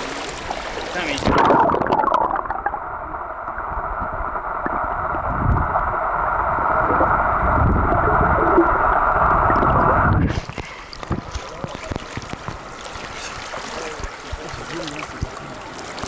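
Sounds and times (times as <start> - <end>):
legs wading thumps: 9.5 - 16.0.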